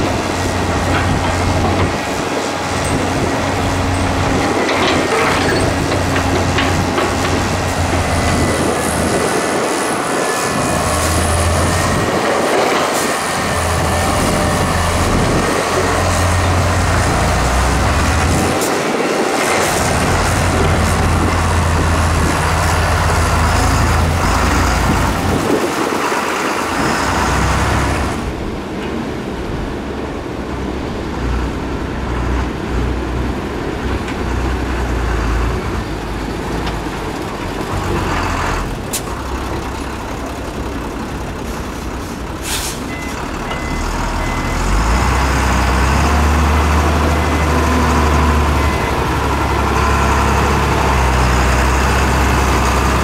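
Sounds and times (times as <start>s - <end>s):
diesel truck engine running: 0.0s - 53.0s
short hiss: 42.4s - 42.9s
faint short beeps: 42.9s - 44.6s.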